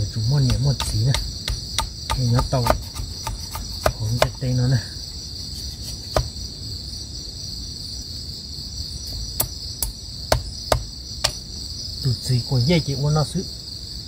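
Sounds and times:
night insects chorus: 0.0 - 14.0
knife cutting stick on wooden block: 0.4 - 4.5, 5.6 - 6.3.

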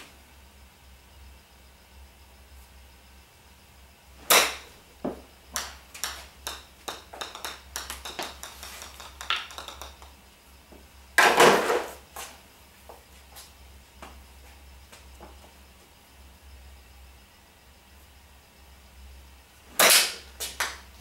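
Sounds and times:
golf club hitting ball: 4.2 - 4.8
golf ball bouncing on concrete: 4.3 - 10.2, 19.8 - 20.9.

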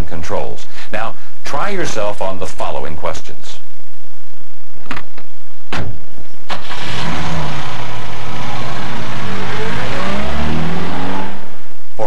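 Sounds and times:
car engine starting and revving: 6.5 - 11.7.

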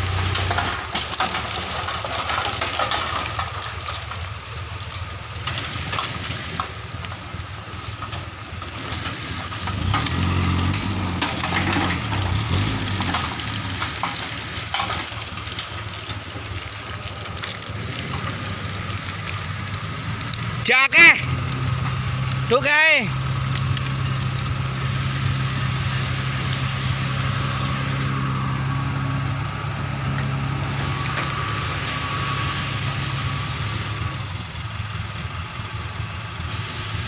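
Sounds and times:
rock sliding out of tipper bed: 0.0 - 4.2, 8.8 - 20.0
dump truck engine running: 0.0 - 37.0.

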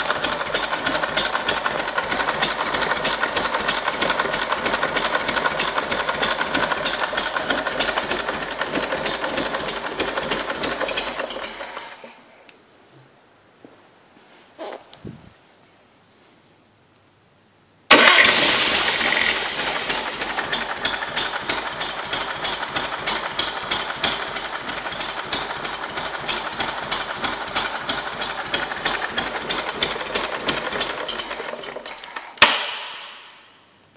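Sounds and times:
marine engine idling: 0.0 - 11.5, 17.9 - 31.9.

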